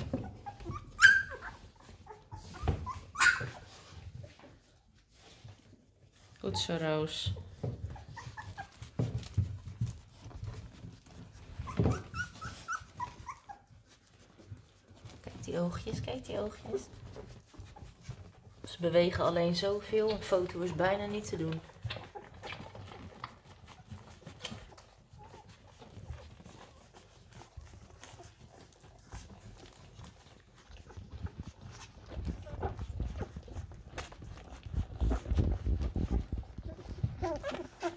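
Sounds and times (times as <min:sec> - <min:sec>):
puppies squeaking and whimpering: 0:00.0 - 0:37.9
soft clicks and rustling: 0:21.3 - 0:37.9.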